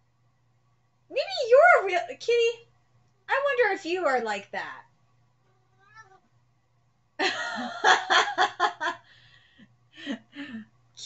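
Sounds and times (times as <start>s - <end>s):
woman laughing: 7.2s - 9.1s.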